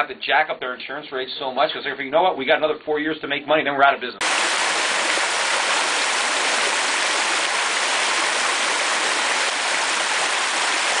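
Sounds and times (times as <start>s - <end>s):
stream flowing over stones: 4.2s - 11.0s.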